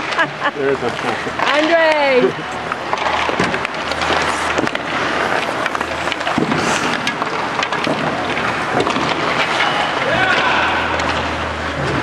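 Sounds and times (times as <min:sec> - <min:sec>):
hockey sticks and pucks clacking: 0:01.0 - 0:12.0
skates scraping on ice: 0:03.0 - 0:11.4.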